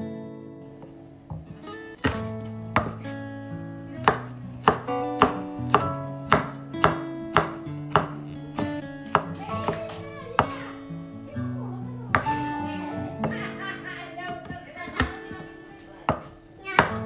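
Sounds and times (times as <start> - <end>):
background music: 0.0 - 17.0
knife chopping on wooden board: 2.0 - 3.1, 4.0 - 10.6, 12.1 - 12.5, 16.1 - 17.0.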